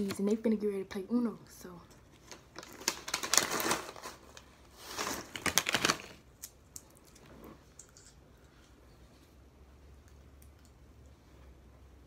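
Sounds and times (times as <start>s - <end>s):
plastic bag crinkling: 2.2s - 6.3s.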